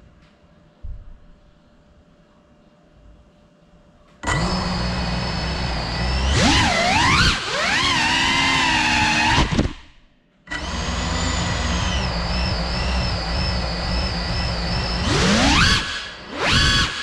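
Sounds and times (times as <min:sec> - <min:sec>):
drone motors whining: 0:04.2 - 0:09.8, 0:10.5 - 0:17.0.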